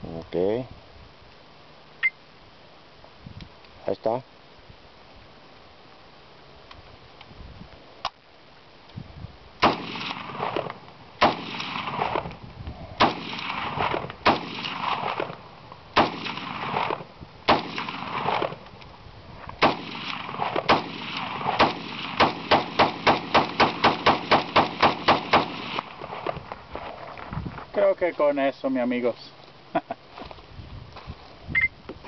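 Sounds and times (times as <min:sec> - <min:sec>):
gunshots with rolling echo: 0:09.6 - 0:12.4, 0:13.0 - 0:18.6, 0:19.6 - 0:27.0.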